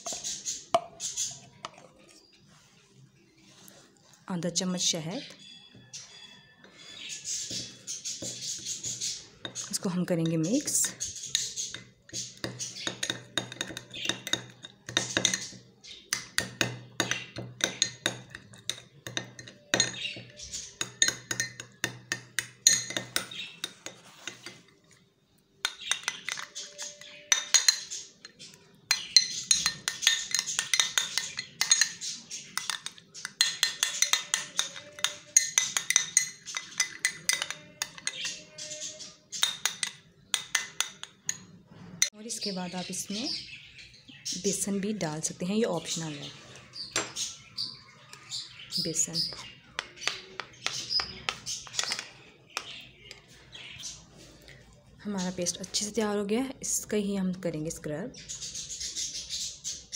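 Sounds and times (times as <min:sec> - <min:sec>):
metal spoon scraping glass bowl: 0:06.0 - 0:16.4, 0:17.0 - 0:24.7, 0:25.7 - 0:42.1
spoon clinking on glass: 0:09.4 - 0:24.6, 0:25.6 - 0:41.5.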